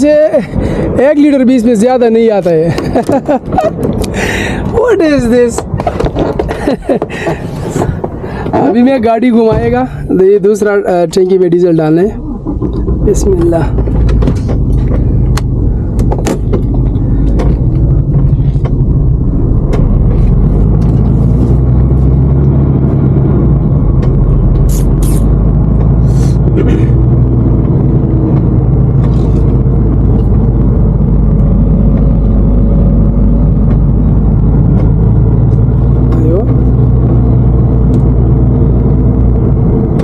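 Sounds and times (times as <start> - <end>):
truck diesel engine running: 11.7 - 40.0.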